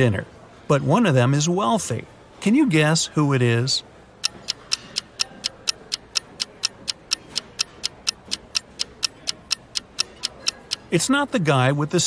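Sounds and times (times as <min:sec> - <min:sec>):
countdown timer ticking: 0:04.2 - 0:11.2.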